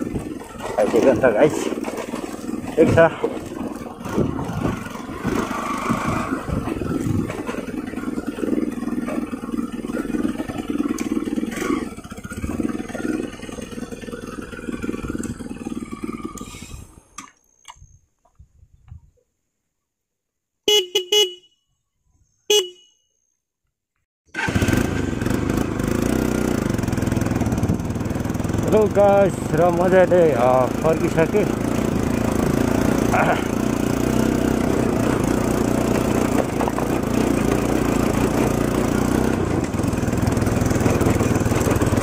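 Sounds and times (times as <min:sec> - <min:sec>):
motorcycle engine running: 0:00.0 - 0:17.2, 0:24.4 - 0:42.0
short horn toots: 0:20.7 - 0:21.7, 0:22.5 - 0:23.1.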